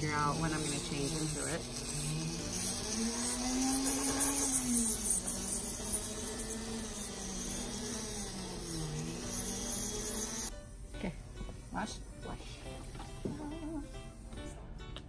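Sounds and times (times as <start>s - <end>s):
electric nail drill buzzing: 0.0s - 10.6s, 11.4s - 14.5s.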